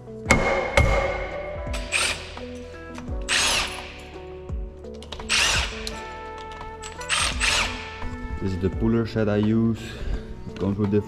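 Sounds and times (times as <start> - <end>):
background music: 0.0 - 11.0
impact wrench bursts: 0.4 - 2.6, 3.2 - 4.0, 5.3 - 5.9, 7.1 - 8.0.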